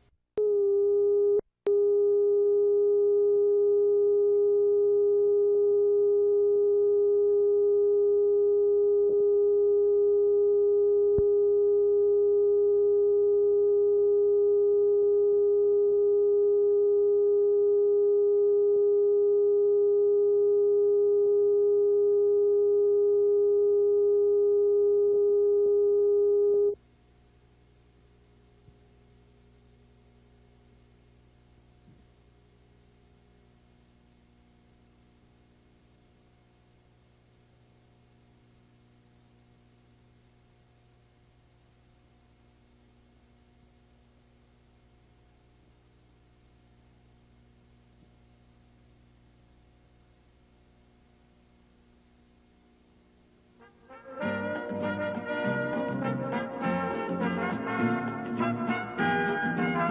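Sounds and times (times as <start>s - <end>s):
faint tape hiss: 0.0s - 59.9s
steady test tone: 0.4s - 26.8s.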